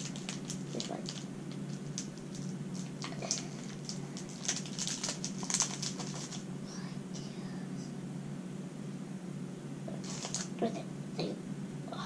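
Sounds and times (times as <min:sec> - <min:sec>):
plastic bag crinkling: 0:00.0 - 0:06.4, 0:10.0 - 0:10.6
steady low hum: 0:00.0 - 0:12.0.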